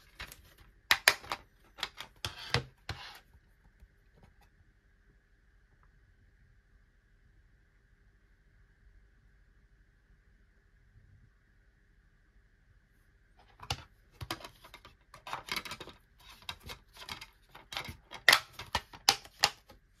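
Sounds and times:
plastic case clicks and rustles: 0:00.0 - 0:02.8, 0:13.5 - 0:19.8.

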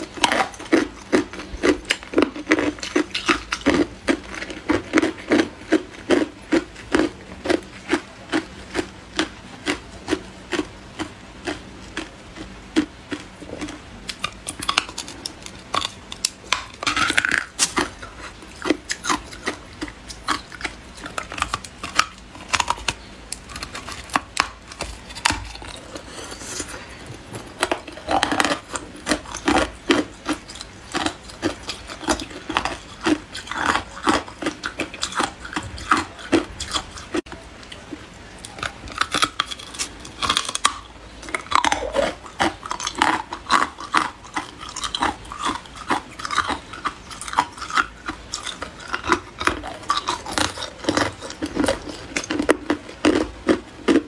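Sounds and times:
ice cubes crunching: 0:13.1 - 0:37.0, 0:38.4 - 0:54.0.

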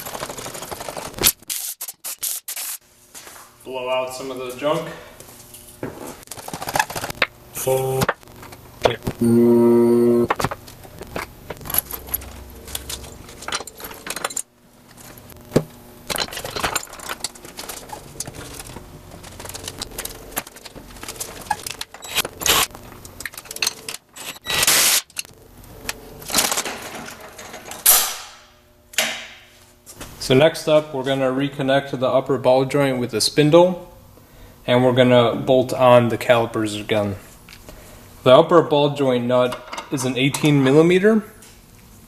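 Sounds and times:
loud steady pitched tone: 0:07.5 - 0:08.2, 0:08.8 - 0:10.5
metal tools clinking and scraping: 0:11.2 - 0:15.2, 0:16.1 - 0:25.3, 0:39.5 - 0:40.8.

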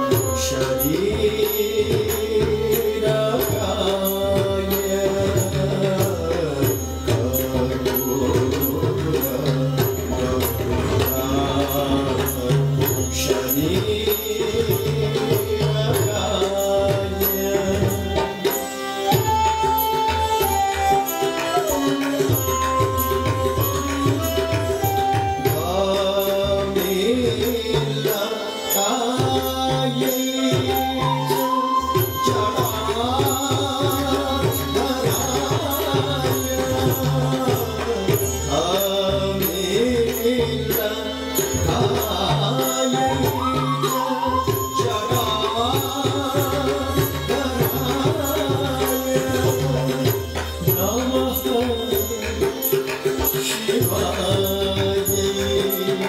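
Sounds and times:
person singing: 0:00.0 - 0:56.0.

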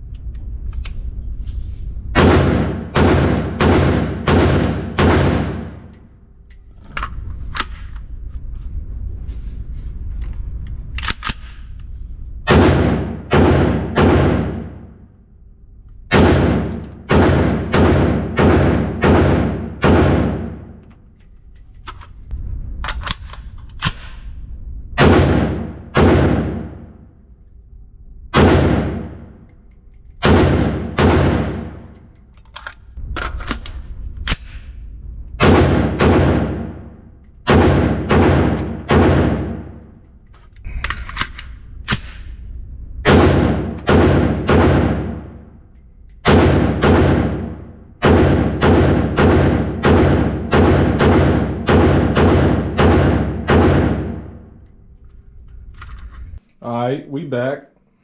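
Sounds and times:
rifle shots echoing indoors: 0:02.0 - 0:08.2, 0:10.5 - 0:56.4.

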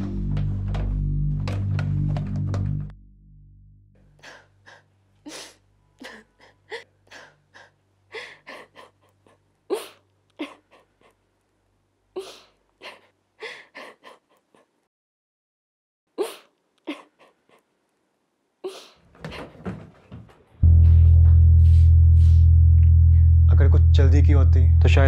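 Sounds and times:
low music: 0:00.0 - 0:04.3, 0:20.6 - 0:25.0
woman sobbing and sniffing: 0:04.2 - 0:11.2, 0:12.2 - 0:14.9, 0:16.2 - 0:17.7, 0:18.6 - 0:19.0.

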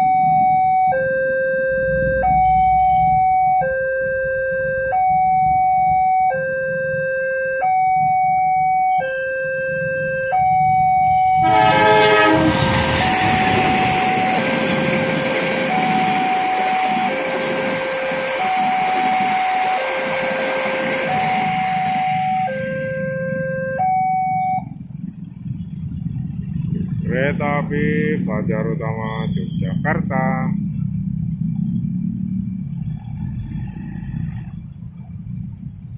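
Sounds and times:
level crossing two-tone alarm: 0:00.0 - 0:24.8
train wheels rushing on rails: 0:11.4 - 0:22.8.

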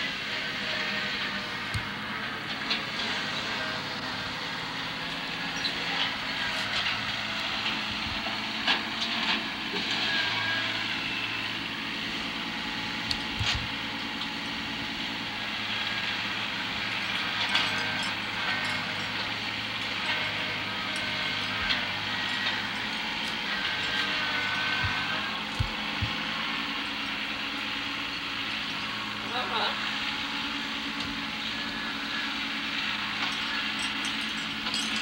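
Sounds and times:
tractor engine running: 0:00.0 - 0:35.0
knocks and rattles: 0:33.2 - 0:35.0.

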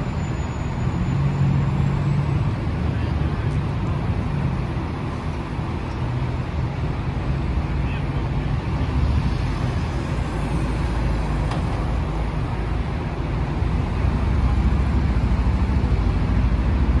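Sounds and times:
vehicles passing slowly: 0:00.0 - 0:17.0.

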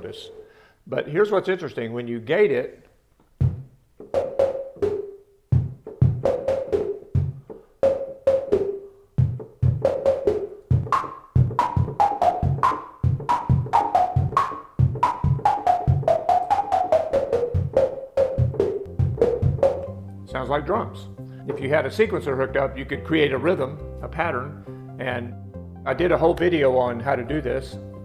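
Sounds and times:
synthesizer percussive hits: 0:03.4 - 0:20.2.

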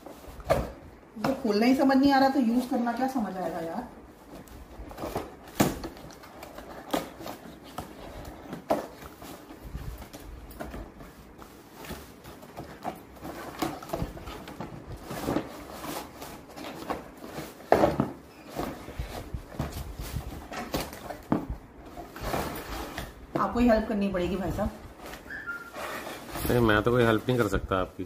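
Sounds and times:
cardboard and tape rustling: 0:00.0 - 0:28.0.

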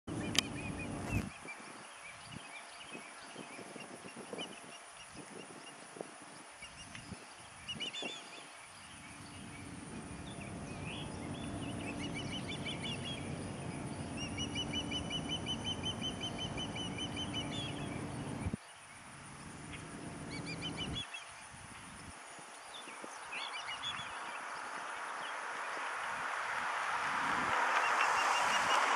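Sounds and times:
ospreys chirping: 0:09.1 - 0:18.6.

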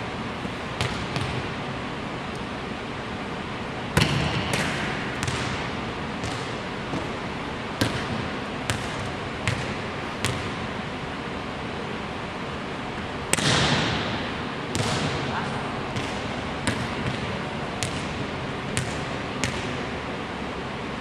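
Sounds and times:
volleyball hit echoing: 0:04.0 - 0:07.2, 0:07.8 - 0:10.6, 0:13.3 - 0:18.2.

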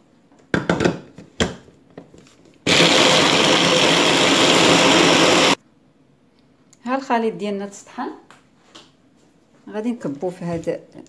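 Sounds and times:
electric chopper motor running: 0:02.7 - 0:05.6.

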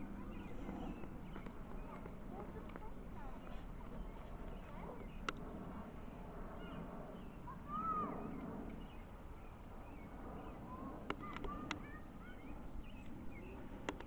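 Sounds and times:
birds chirping: 0:00.0 - 0:14.0
low background rumble: 0:00.0 - 0:14.0
sharp clicks: 0:13.8 - 0:14.0.

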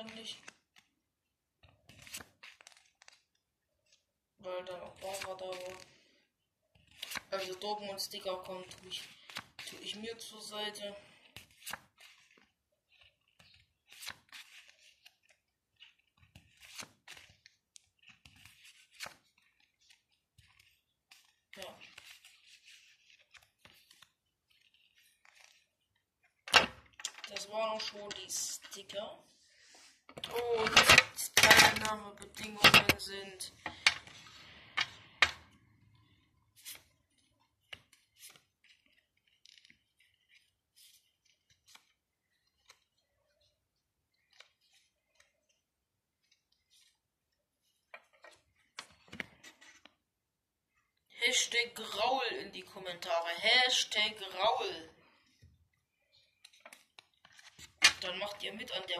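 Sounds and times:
paper sliding and rubbing: 0:11.2 - 0:25.6.

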